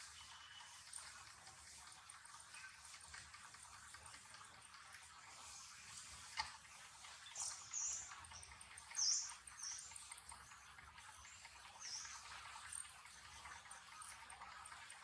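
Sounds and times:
faint high bird chirps: 0.0 - 0.9, 7.1 - 10.0.

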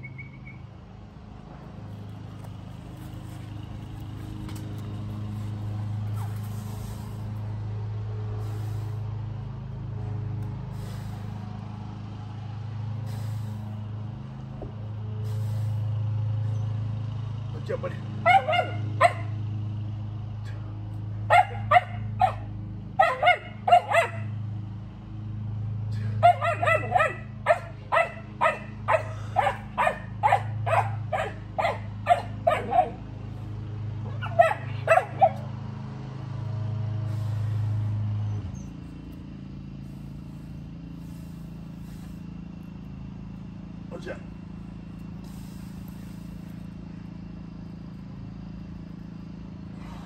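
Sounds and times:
steady low hum: 0.0 - 50.0
dog barking: 18.2 - 19.4, 21.3 - 24.4, 26.2 - 33.0, 34.1 - 35.5.

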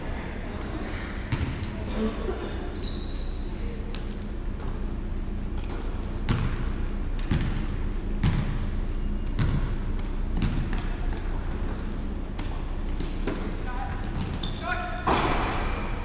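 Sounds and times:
basketball bouncing on hardwood floor: 6.3 - 6.5, 7.2 - 7.6, 8.2 - 8.6, 9.4 - 9.7.

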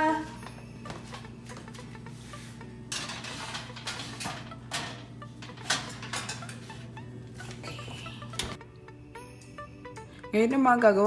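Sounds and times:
metal pans clanking on oven rack: 2.8 - 7.0.

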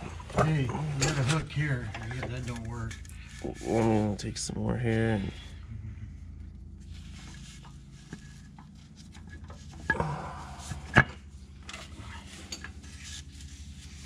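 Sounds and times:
metal clatter: 0.0 - 3.9
steady low hum: 0.0 - 14.0.

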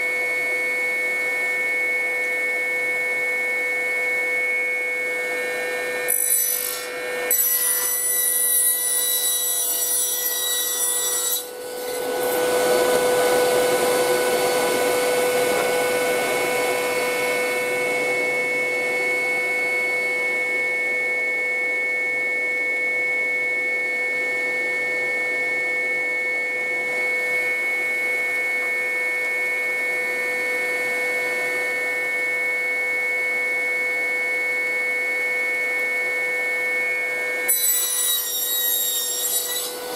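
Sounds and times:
workshop machine whining: 0.1 - 24.5.

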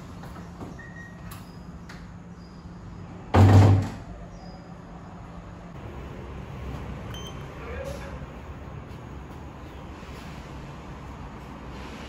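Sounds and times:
wooden door slamming shut: 3.4 - 4.0.

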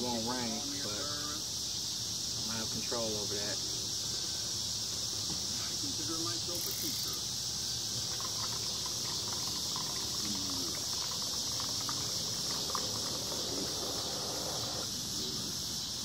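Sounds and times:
steady high hiss: 0.0 - 16.0
juice trickling into plastic cup: 6.6 - 7.2, 8.0 - 14.8.

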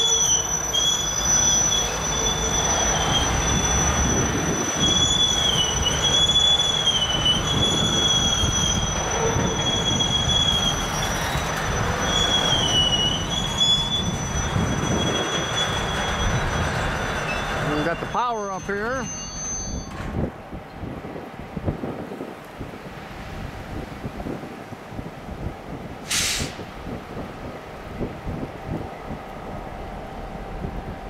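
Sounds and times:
train wheels squealing: 0.0 - 20.0
low train rumble: 0.0 - 31.0
wind buffeting microphone: 3.1 - 17.1, 19.9 - 31.0.

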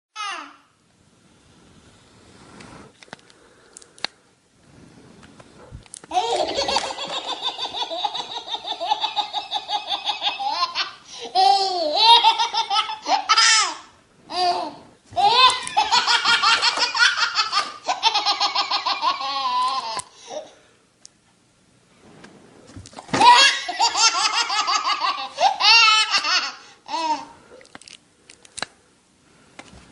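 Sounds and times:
baby laughing: 6.1 - 20.6, 23.2 - 27.3.

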